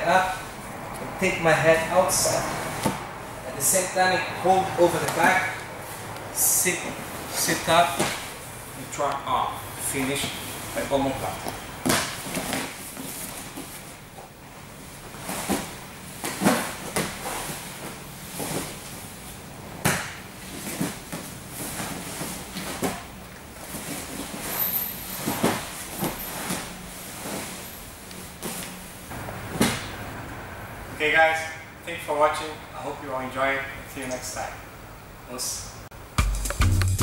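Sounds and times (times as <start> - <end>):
bodies thudding on padded mat: 29.4 - 30.0.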